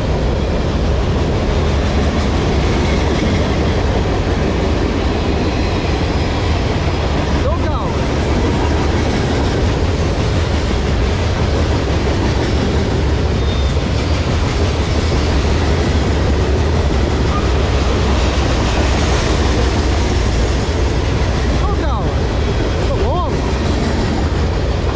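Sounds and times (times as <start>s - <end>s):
steel train wheels on rails: 0.0s - 24.9s.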